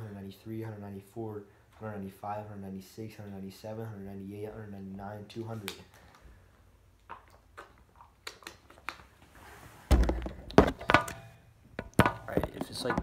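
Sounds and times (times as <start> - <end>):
device handling knocks and rustling: 9.9 - 13.0.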